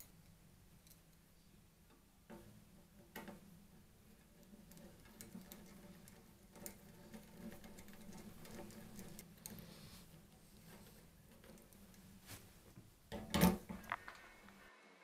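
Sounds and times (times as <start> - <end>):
small clicks and taps on metal: 1.9 - 9.7, 10.3 - 12.0.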